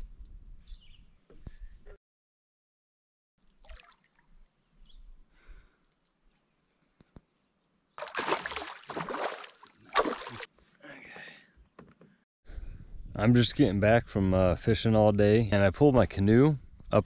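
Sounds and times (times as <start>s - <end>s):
faint water drips: 3.4s - 4.5s
fish thrashing and splashing: 8.0s - 10.5s.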